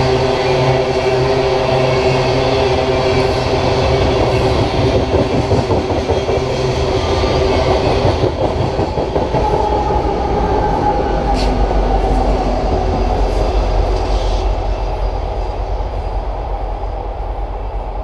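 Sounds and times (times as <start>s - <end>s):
diesel locomotive engine: 0.0s - 18.0s
train wheels clattering over rail joints: 4.0s - 9.8s.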